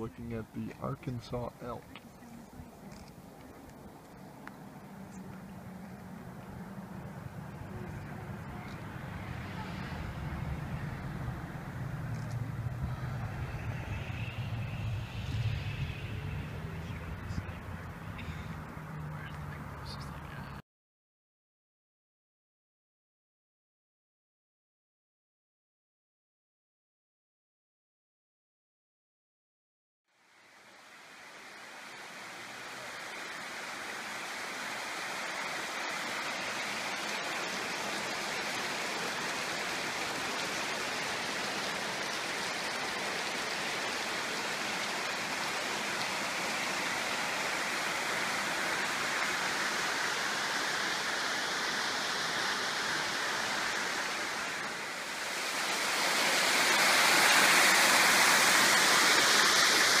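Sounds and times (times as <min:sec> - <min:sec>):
waterfall rushing over rock: 0:03.2 - 0:20.0, 0:30.3 - 1:00.0.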